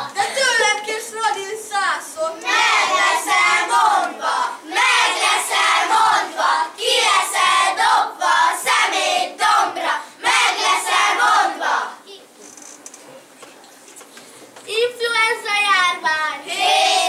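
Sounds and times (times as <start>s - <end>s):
children chanting in unison: 2.4s - 12.1s, 16.5s - 17.0s.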